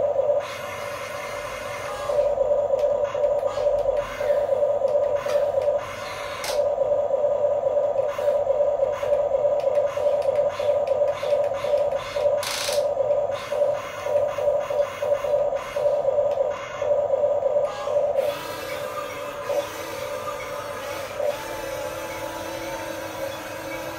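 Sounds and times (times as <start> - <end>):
electric gear motors whining: 0.0 - 17.0, 17.6 - 23.9.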